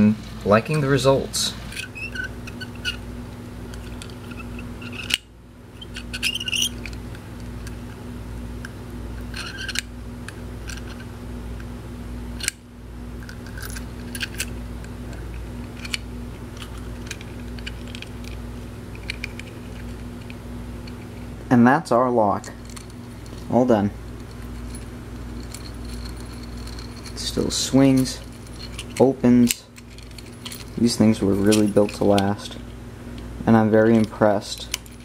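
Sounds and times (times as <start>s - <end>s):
steady low hum: 0.0s - 35.0s
padlock metal clicks and clinks: 27.8s - 30.8s.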